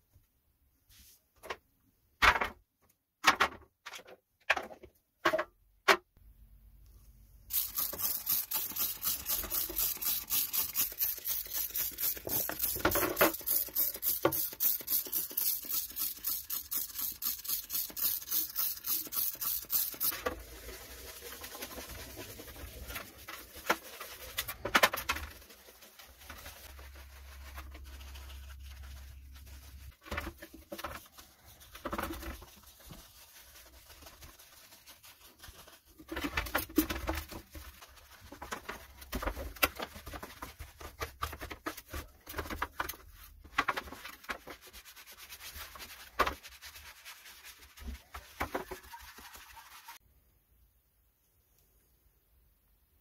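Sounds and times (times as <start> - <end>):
bristle brush wet scrubbing: 7.5 - 39.2, 44.1 - 50.0.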